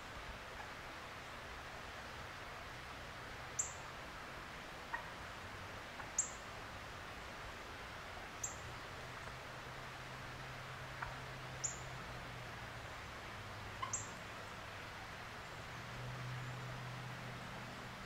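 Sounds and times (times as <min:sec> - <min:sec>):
faint woodland hiss: 0:00.0 - 0:18.0
bird chip calls: 0:06.0 - 0:06.4, 0:11.0 - 0:11.9, 0:13.8 - 0:14.2.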